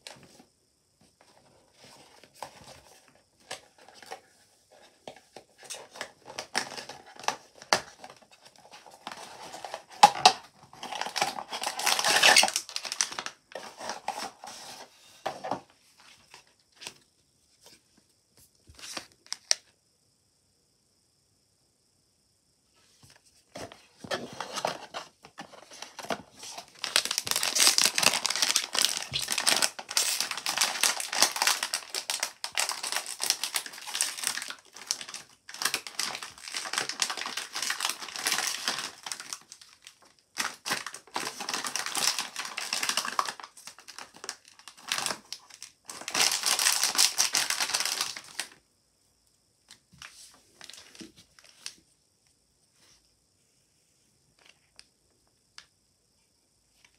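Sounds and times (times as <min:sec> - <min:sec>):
plastic foil packaging crinkling: 0:05.6 - 0:14.9, 0:23.6 - 0:48.6, 0:50.6 - 0:51.7.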